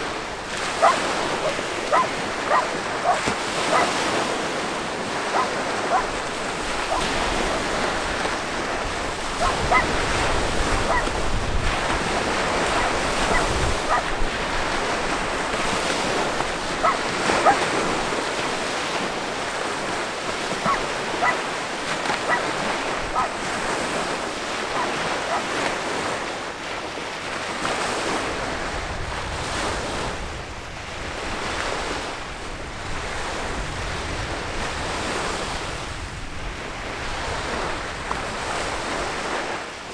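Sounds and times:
water washing: 0.0s - 25.8s
wind on microphone: 0.0s - 39.9s.

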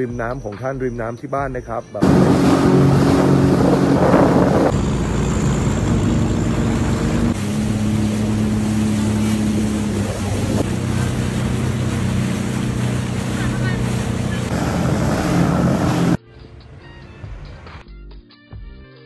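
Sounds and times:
wind noise: 2.0s - 10.7s
jet ski engine running: 2.0s - 16.2s
water noise: 2.0s - 16.2s.

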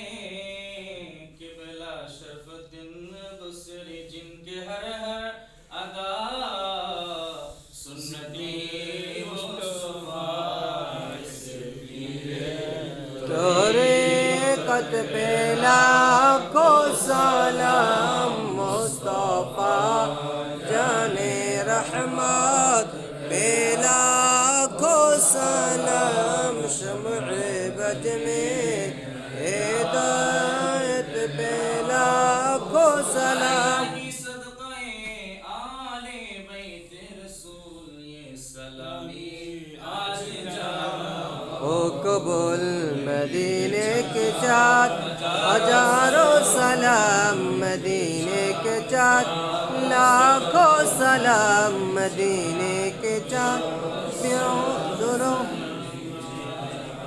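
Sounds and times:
men chanting: 7.9s - 34.3s, 39.0s - 57.0s.

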